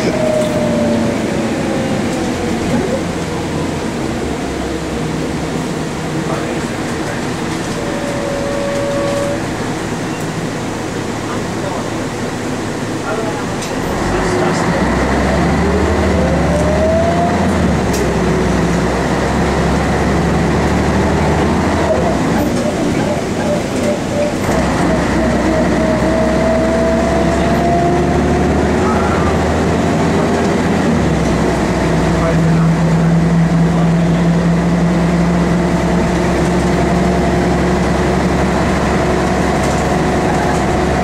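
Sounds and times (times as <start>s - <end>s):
rising whine: 0.0s - 5.3s
bus diesel engine rumble: 0.0s - 41.0s
whine sliding down in pitch: 7.7s - 9.7s.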